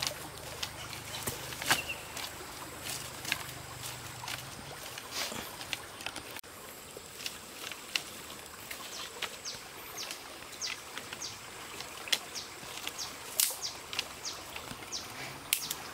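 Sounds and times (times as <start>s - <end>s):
dry sticks cracking: 0.0s - 6.4s, 10.0s - 15.9s
bird chirping: 0.8s - 2.2s.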